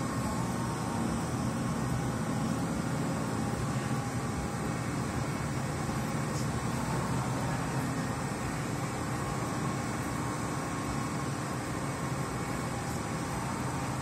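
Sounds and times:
vehicle engines rumbling: 0.0 - 14.0.

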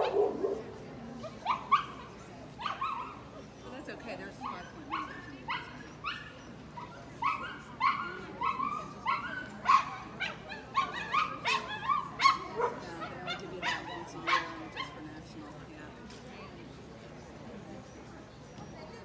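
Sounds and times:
dog yipping: 1.4 - 3.3, 4.4 - 15.0.

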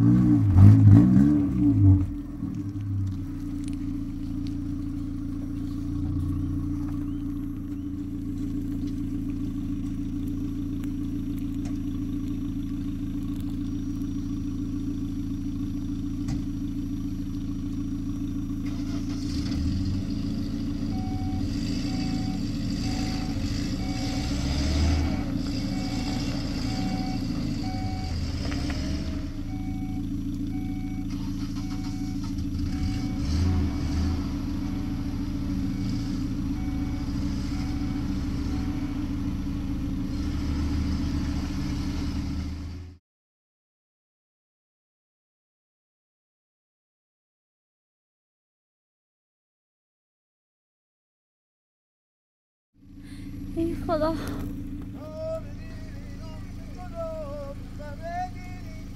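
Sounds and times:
truck engine humming and revving: 0.0 - 43.0, 52.8 - 58.9
vehicle warning beep: 20.8 - 39.5.

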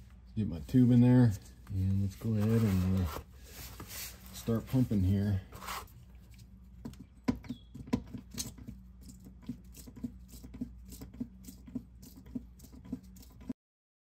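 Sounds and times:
steady low hum: 0.0 - 13.6
hand pump clicking and squeaking: 7.4 - 13.4.

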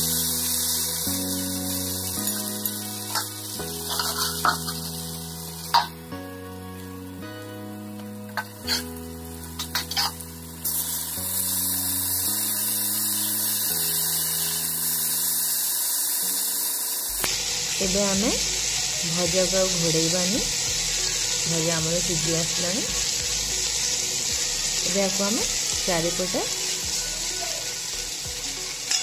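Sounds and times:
food sizzling in oil: 0.0 - 29.0
spatula scraping a pan: 3.1 - 4.9, 8.4 - 9.0, 9.6 - 10.2.

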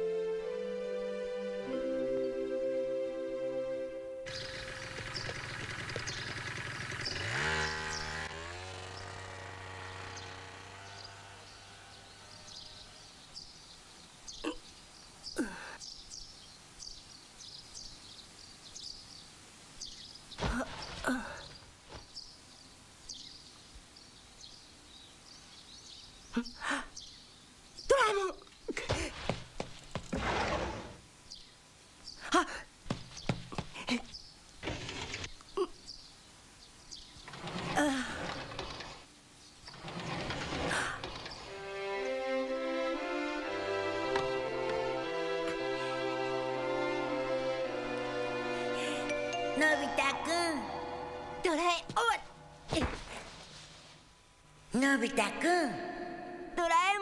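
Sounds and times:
soft music: 0.0 - 4.5, 41.5 - 52.7
small birds chirping: 4.3 - 30.1, 31.2 - 41.6
boy breathing: 48.5 - 49.1
boy calling out: 49.6 - 50.7, 51.4 - 53.0, 54.8 - 57.0.

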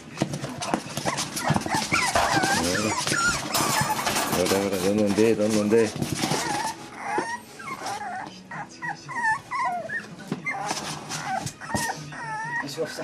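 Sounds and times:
paws scratching cardboard box: 0.0 - 13.0
puppies whining: 0.0 - 13.0.

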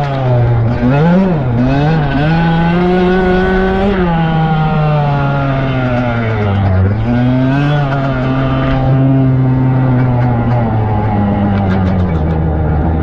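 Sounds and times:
dirt bike engine revving: 0.0 - 13.0.

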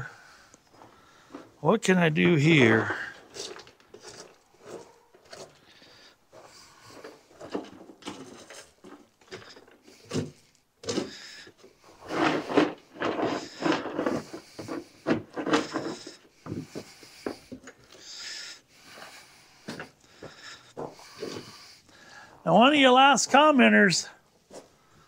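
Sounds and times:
man breathing hard and grunting: 15.5 - 22.4.

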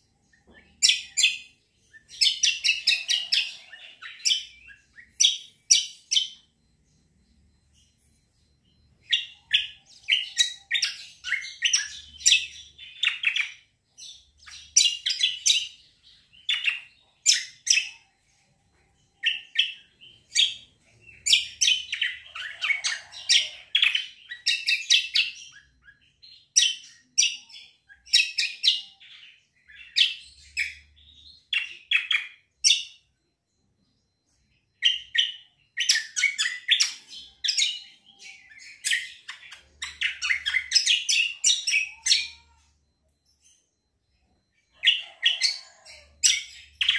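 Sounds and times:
bird singing high chirps: 0.0 - 46.9.

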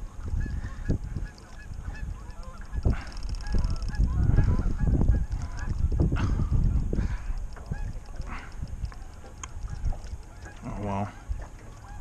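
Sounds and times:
geese honking: 0.2 - 5.8, 9.0 - 12.0.

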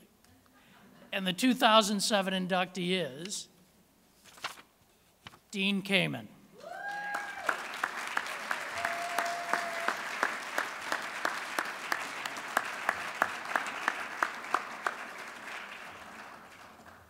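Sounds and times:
audience applauding: 6.6 - 17.0
close person clapping: 6.8 - 17.0.

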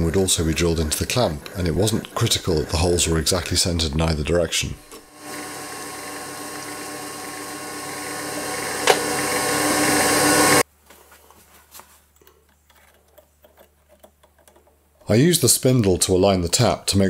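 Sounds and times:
milling machine motor running: 4.9 - 10.6.

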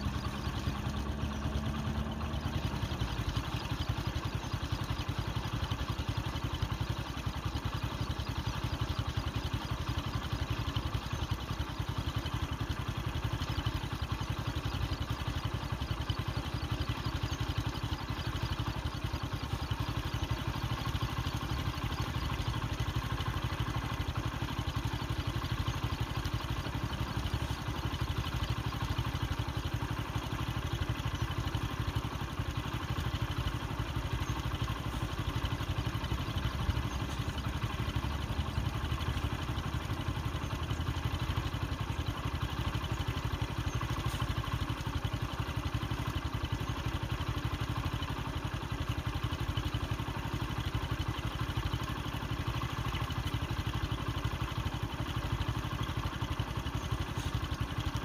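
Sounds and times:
vehicle engine idling: 0.0 - 58.0.

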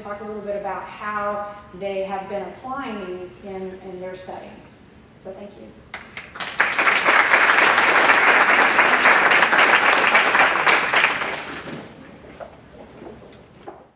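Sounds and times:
audience applauding: 6.0 - 12.2.

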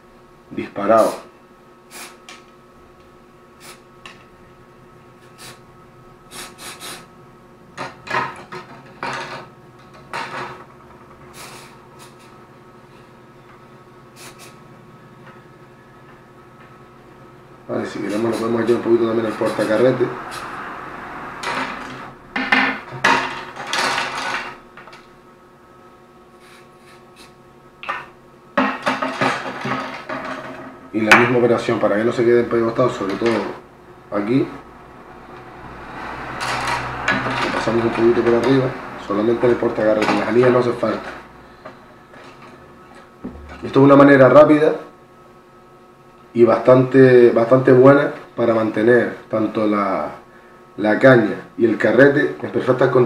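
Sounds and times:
aerosol spray hissing: 1.9 - 2.2, 11.4 - 12.3
aerosol spray hissing puffs: 1.9 - 2.3, 3.6 - 3.8, 6.3 - 7.1, 11.4 - 12.4, 14.2 - 14.6.

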